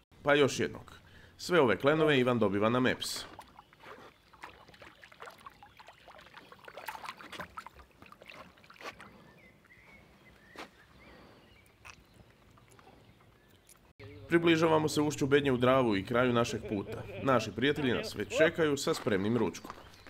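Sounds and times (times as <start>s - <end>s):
water lapping around boat: 3.0s - 13.9s
light knocks and splashes: 3.1s - 9.2s.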